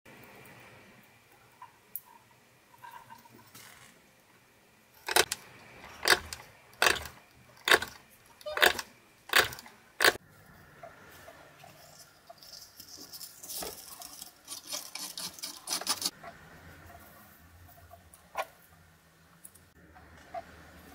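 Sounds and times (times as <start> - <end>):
scratching and rustling: 5.0 - 16.2.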